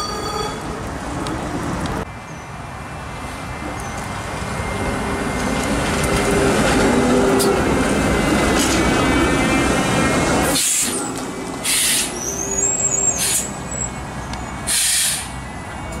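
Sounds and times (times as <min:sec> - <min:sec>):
streetcar rumbling on rails: 0:00.0 - 0:16.0
air hisses: 0:11.6 - 0:12.2, 0:14.7 - 0:15.4.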